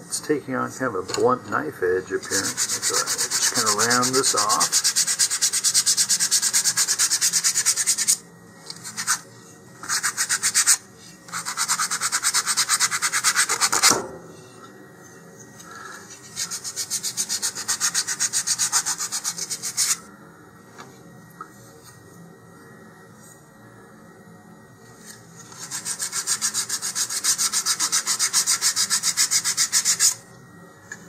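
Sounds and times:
wood sanding on sanding block: 2.2 - 8.2, 9.8 - 13.9, 16.2 - 20.0, 25.5 - 30.2.

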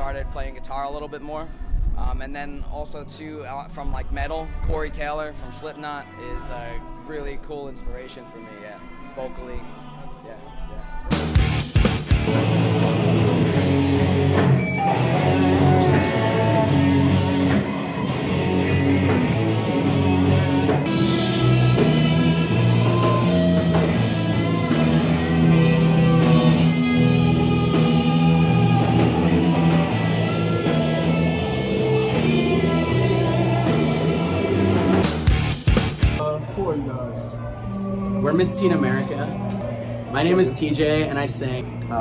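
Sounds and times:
drum kit: 11.1 - 36.2
electric guitars: 11.1 - 36.2
bass guitar: 11.1 - 36.3.

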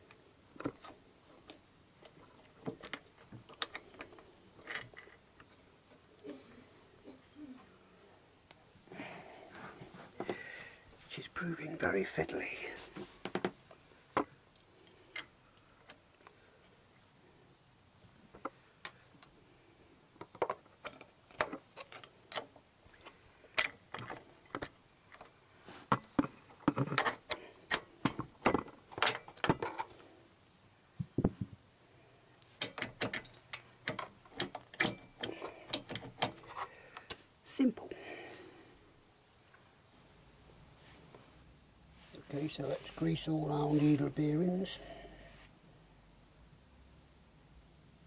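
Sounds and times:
small metallic clicks and knocks: 0.0 - 6.0, 13.2 - 16.3, 20.2 - 30.0, 32.4 - 37.2.

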